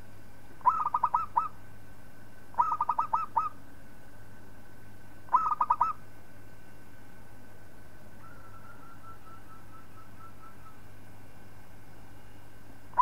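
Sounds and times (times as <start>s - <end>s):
dove cooing: 0.6s - 1.6s, 2.6s - 3.6s, 5.3s - 6.0s, 8.2s - 10.8s.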